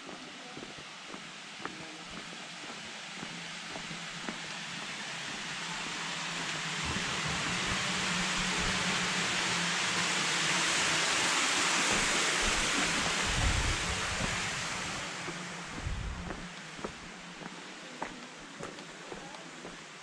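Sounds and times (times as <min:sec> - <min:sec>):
waterfall rushing: 0:05.5 - 0:20.0
low bumps: 0:15.7 - 0:17.0.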